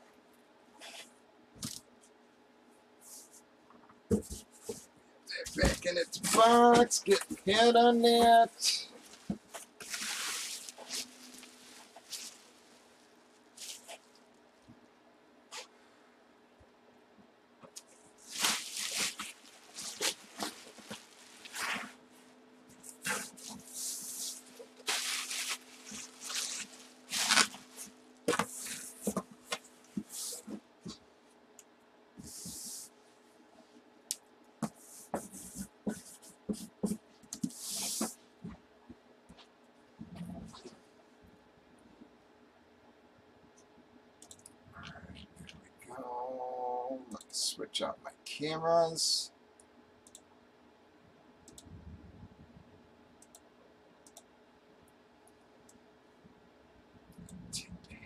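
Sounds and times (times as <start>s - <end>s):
cardboard scraping and rustling: 9.1s - 12.5s, 18.3s - 22.0s, 23.0s - 29.3s
computer mouse clicks: 44.2s - 44.6s, 53.2s - 54.3s
soft low rumble: 51.6s - 52.8s.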